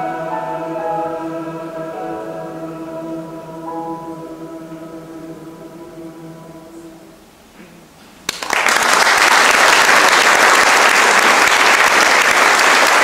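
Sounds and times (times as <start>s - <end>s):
male voice choir singing: 0.0s - 7.3s
audience applause: 8.3s - 13.0s.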